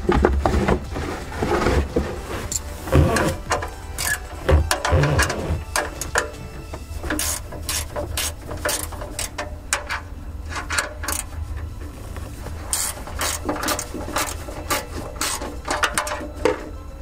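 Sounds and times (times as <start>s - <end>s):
hand ratchet clicking: 7.0s - 11.4s, 12.7s - 16.3s.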